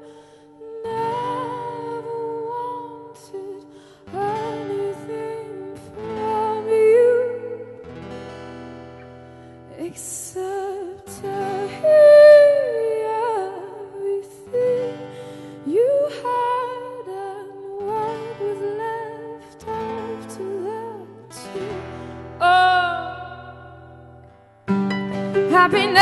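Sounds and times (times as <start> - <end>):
woman singing: 0.0 - 8.2, 9.7 - 24.3, 25.4 - 26.0.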